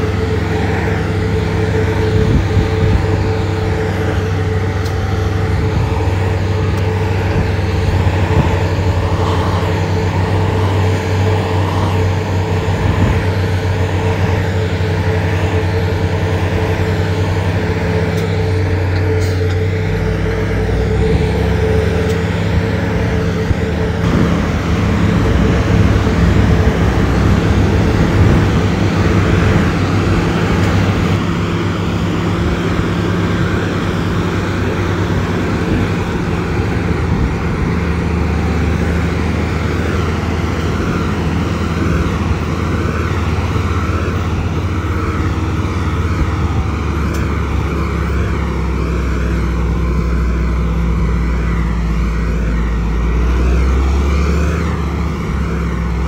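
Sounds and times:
diesel engine droning: 0.0s - 56.0s.

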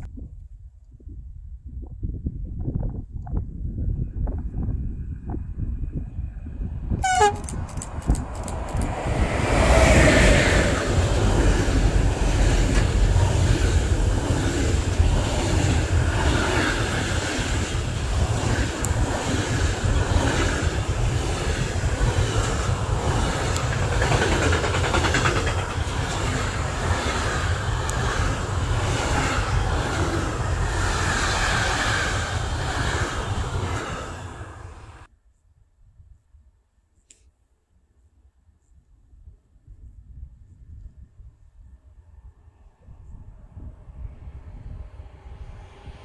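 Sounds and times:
train wheels on rails: 7.0s - 35.1s.

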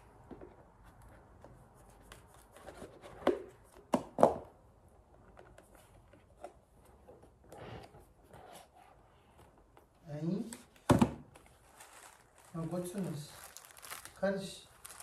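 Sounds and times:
soft cardboard scrape: 7.5s - 9.3s.

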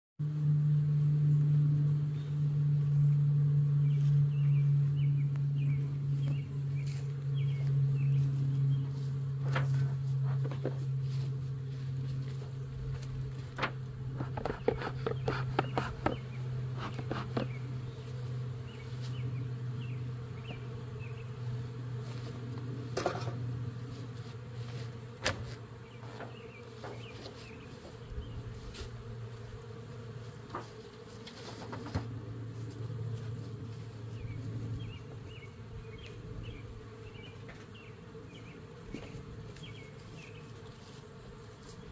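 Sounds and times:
honeybees humming: 0.2s - 41.9s
wooden hive covers knocking: 13.6s - 17.6s.

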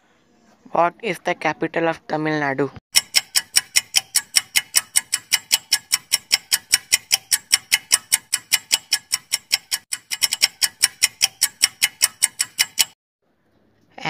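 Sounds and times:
clock ticking fast: 2.9s - 13.0s.

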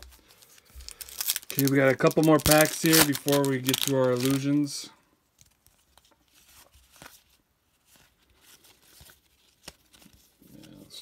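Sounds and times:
cardboard cards rustling and clicking: 0.0s - 4.7s.

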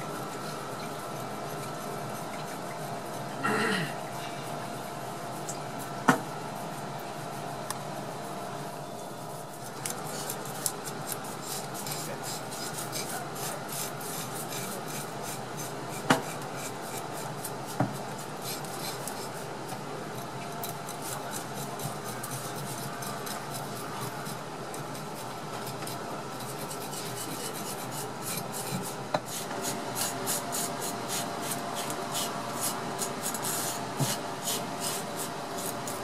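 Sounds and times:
knife scraping fish skin: 9.4s - 19.4s, 20.6s - 36.0s.

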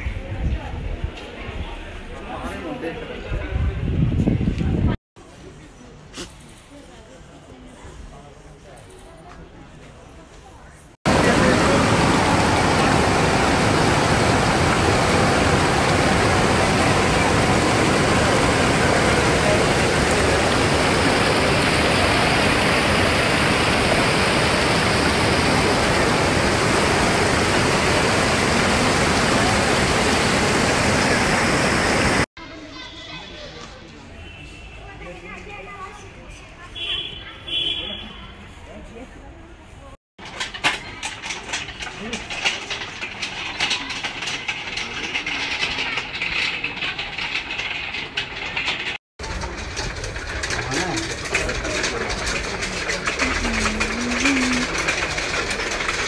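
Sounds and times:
metal prayer wheels rattling: 11.1s - 30.3s, 40.2s - 56.0s
river rushing over boulders: 11.1s - 32.3s.

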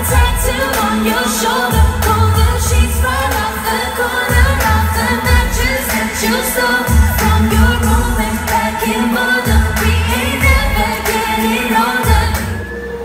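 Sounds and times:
pop backing track with bass: 0.0s - 13.0s
woman singing into microphone: 0.0s - 13.0s.

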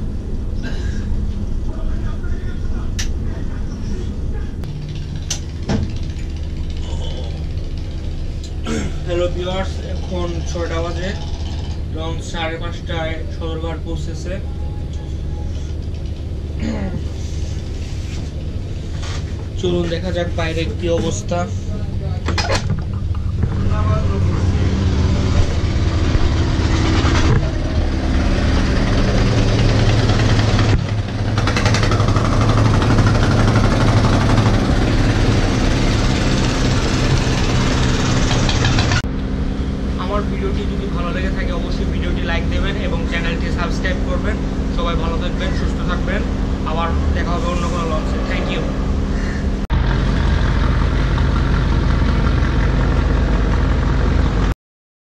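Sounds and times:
diesel engines droning: 0.0s - 54.5s
broad rushing noise: 23.2s - 54.5s.

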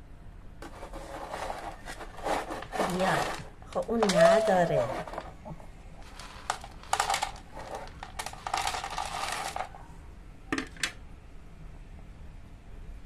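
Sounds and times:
dry kibble pouring into a bowl: 6.0s - 9.7s.

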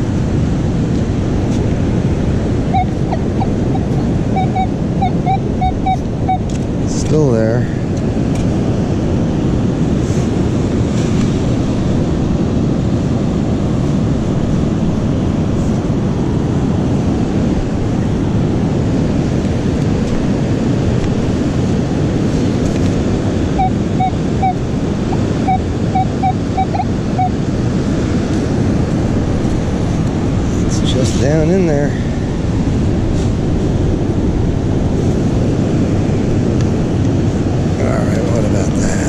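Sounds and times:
breaking surf: 0.0s - 39.0s
wind on microphone: 0.0s - 39.0s
metal detector beeps: 2.7s - 6.6s, 23.6s - 27.4s.

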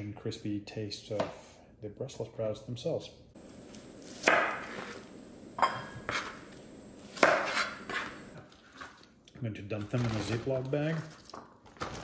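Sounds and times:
knife cutting on cutting board: 5.9s - 6.5s, 7.1s - 8.9s.

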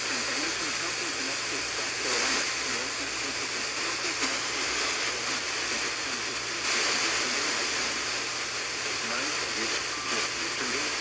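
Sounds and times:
faint voice on radio: 0.0s - 11.0s
radio static hiss: 0.0s - 11.0s.

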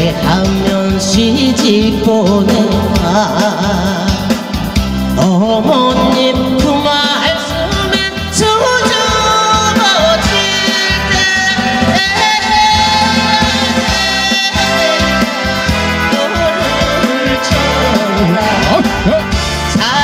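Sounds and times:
band playing: 0.0s - 20.0s
woman singing with vibrato: 5.2s - 19.2s.

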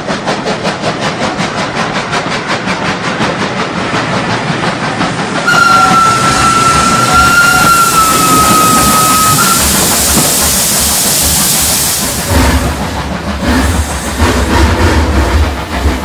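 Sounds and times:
hiss of steam: 0.0s - 16.0s
train clattering on rails: 0.0s - 16.0s
steam train whistle: 5.5s - 10.4s.

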